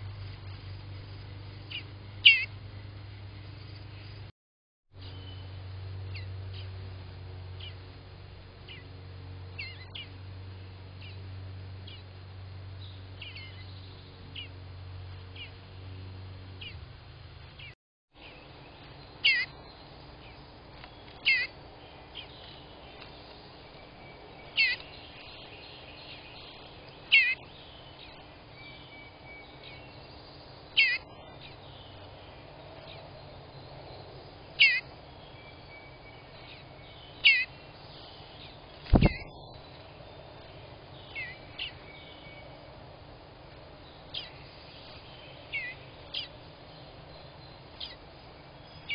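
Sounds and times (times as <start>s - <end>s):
bird fledgling calling: 1.7s - 2.5s, 8.7s - 8.9s, 9.6s - 10.1s, 13.2s - 14.5s, 18.8s - 30.1s, 30.7s - 32.1s, 34.5s - 40.0s, 40.9s - 42.5s, 43.9s - 48.0s
low hum: 5.0s - 48.9s
faint chirping: 17.5s - 48.9s.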